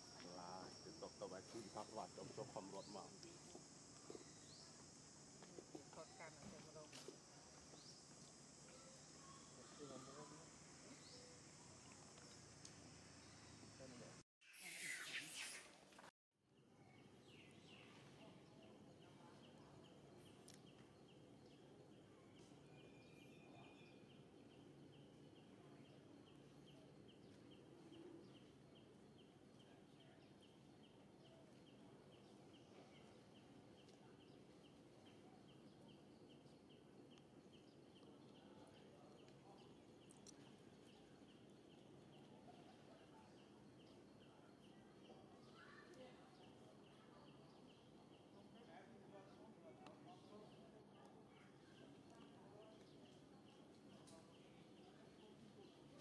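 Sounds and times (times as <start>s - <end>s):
faint outdoor ambience: 0.0s - 56.0s
faint high chirp: 7.7s - 16.0s.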